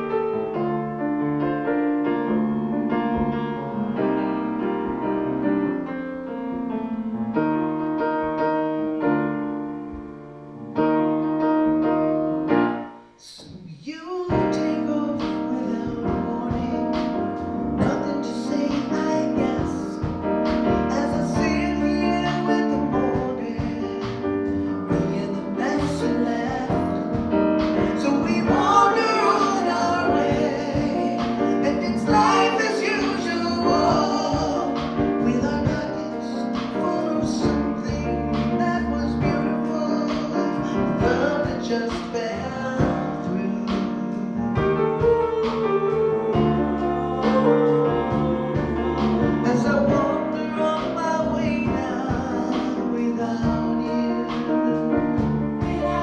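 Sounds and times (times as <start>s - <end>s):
upright bass: 0.0s - 6.7s, 13.4s - 56.0s
piano ballad: 0.0s - 56.0s
woman singing: 28.0s - 34.9s, 45.0s - 51.0s.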